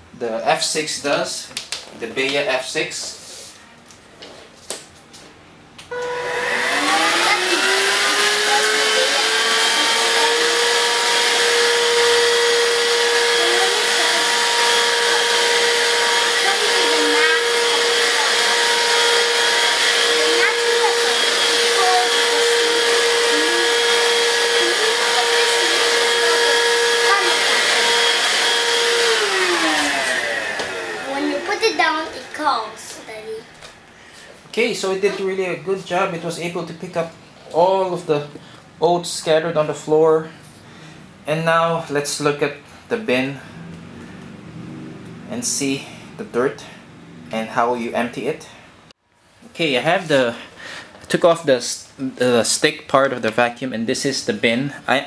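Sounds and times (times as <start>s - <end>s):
stick vacuum motor whine: 5.8s - 33.8s.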